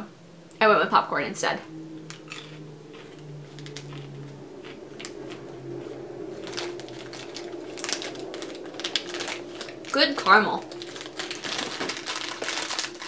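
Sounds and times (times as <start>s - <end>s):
chewing crunchy popcorn: 2.1s - 13.0s
plastic snack bag crinkling: 2.3s - 5.4s, 6.4s - 13.0s.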